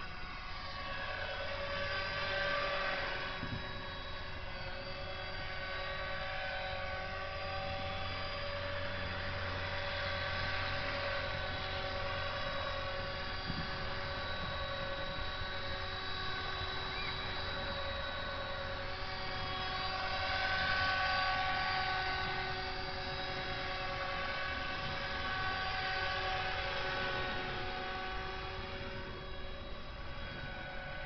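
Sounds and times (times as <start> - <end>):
rc helicopter motor whine: 0.0 - 31.0.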